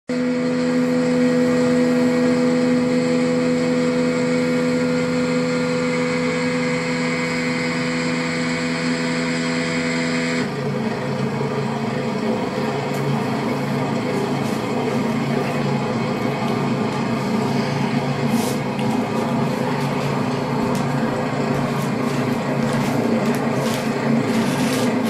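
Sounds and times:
engine running: 0.1 - 25.0.

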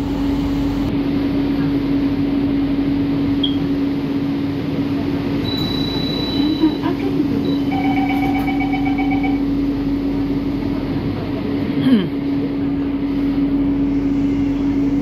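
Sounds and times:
train electric hum: 0.0 - 15.0
quick door beeps: 5.4 - 6.8
high warning tone: 5.4 - 9.6.

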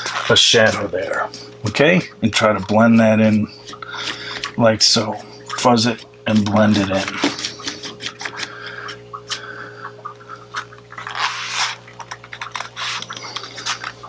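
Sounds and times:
paintbrush scrubbing on wet paper: 6.3 - 8.4, 11.0 - 11.8, 12.4 - 14.0.

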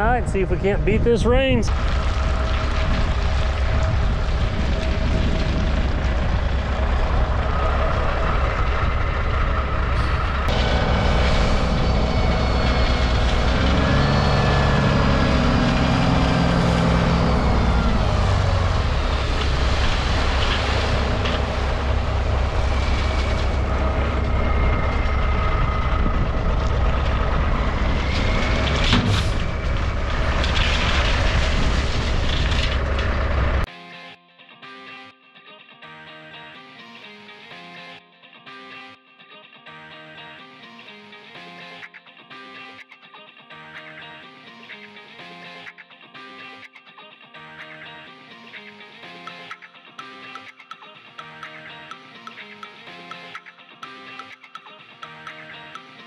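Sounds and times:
gravel sliding out: 1.7 - 33.6
dump truck engine revving: 1.7 - 33.7
low diesel engine rumble: 1.7 - 33.7.

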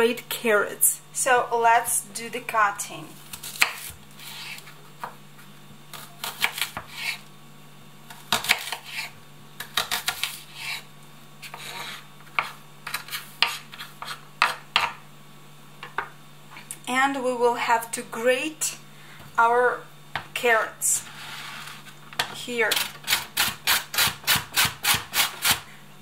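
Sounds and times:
low steady hum: 0.0 - 26.0
knife chopping on wooden board: 6.2 - 7.2, 8.1 - 10.8, 11.4 - 15.0.

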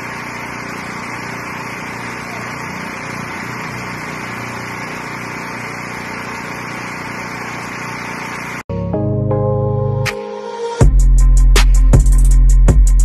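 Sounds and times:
small engine running: 0.0 - 8.7.

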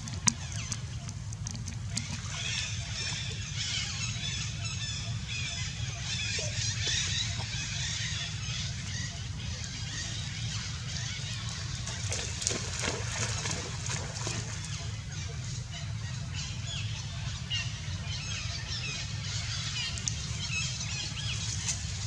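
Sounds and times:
steady low rumble: 0.0 - 22.0
splashes in water: 11.5 - 14.8.

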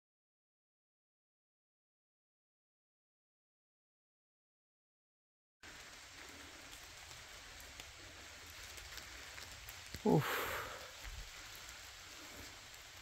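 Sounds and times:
faint outdoor hiss: 5.6 - 13.0
light patter: 5.6 - 13.0
falling voice-like sound: 10.0 - 10.8
breathy rush: 10.0 - 12.7.

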